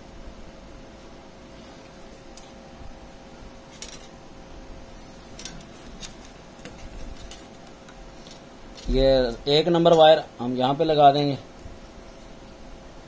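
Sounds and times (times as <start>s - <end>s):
faint steady hum: 0.0s - 13.0s
wires clicking on metal terminals: 5.3s - 10.2s.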